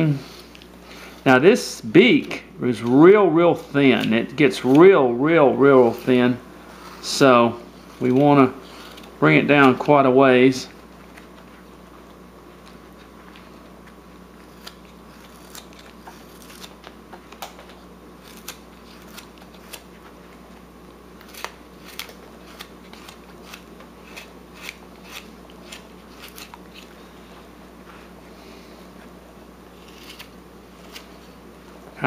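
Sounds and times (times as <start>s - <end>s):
faint steady hum: 0.0s - 32.0s
knife cutting wood: 14.3s - 16.9s, 18.2s - 20.1s, 21.2s - 27.0s, 29.7s - 31.4s.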